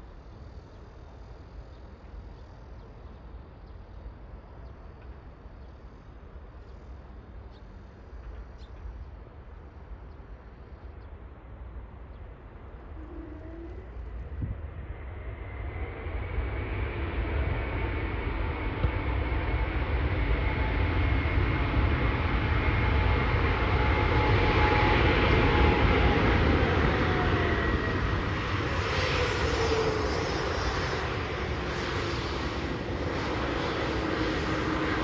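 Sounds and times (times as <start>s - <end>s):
jet airliner roar: 6.5s - 35.0s
faint bird chirps: 12.1s - 14.1s.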